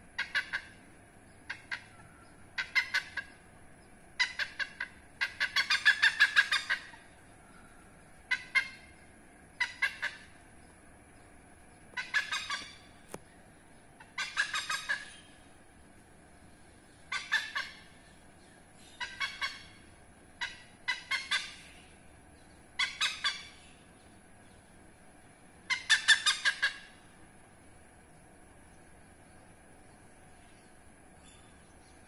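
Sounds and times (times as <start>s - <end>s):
hornbill harsh cackling: 0.2s - 0.8s, 2.6s - 3.4s, 4.2s - 7.2s, 8.3s - 8.9s, 9.6s - 10.4s, 12.0s - 12.9s, 14.0s - 15.4s, 17.1s - 18.0s, 19.0s - 21.9s, 22.8s - 23.7s, 25.7s - 27.1s.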